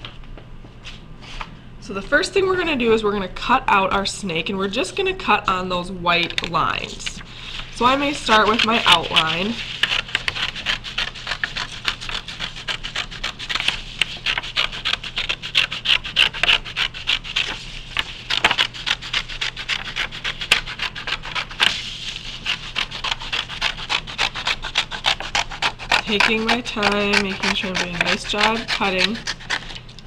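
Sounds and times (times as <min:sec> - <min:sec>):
scissors snipping paper: 0:08.0 - 0:21.8, 0:22.4 - 0:29.8.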